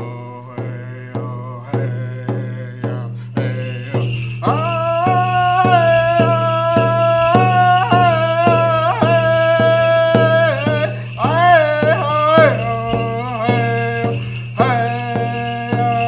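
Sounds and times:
hand drum beating: 0.0s - 16.0s
man singing a long high note: 0.0s - 16.0s
metal jingles shaking: 3.1s - 16.0s.

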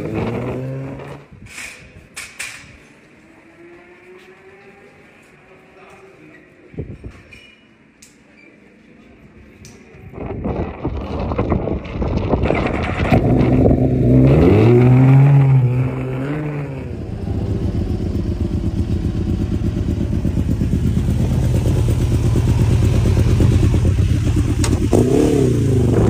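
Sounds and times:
motorcycle engine revving and idling: 10.2s - 26.0s.

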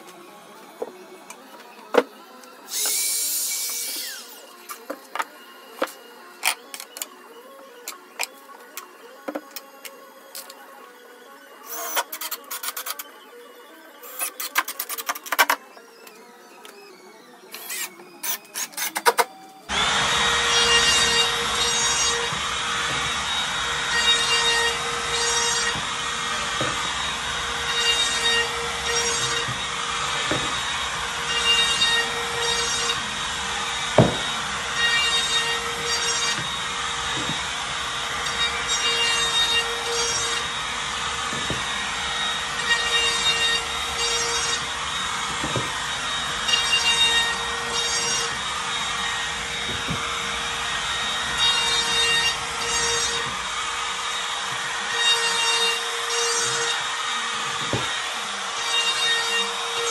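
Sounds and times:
router cutting wood: 0.0s - 59.9s.

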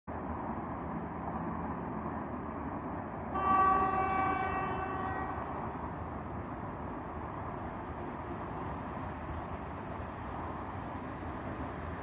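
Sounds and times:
distant train horn blast: 3.3s - 5.8s.

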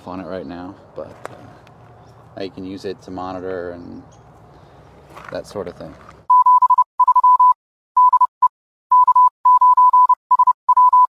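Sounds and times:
morse code beeps: 6.3s - 11.0s.

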